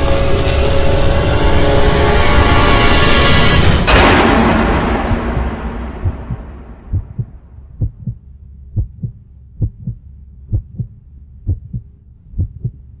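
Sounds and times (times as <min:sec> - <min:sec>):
booming music hit: 0:03.7 - 0:07.7
heartbeat thumps: 0:05.0 - 0:13.0.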